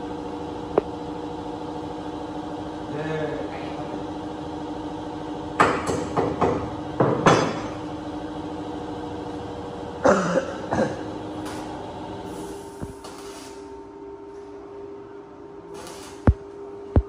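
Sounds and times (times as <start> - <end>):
steady machine hum: 0.0 - 17.0.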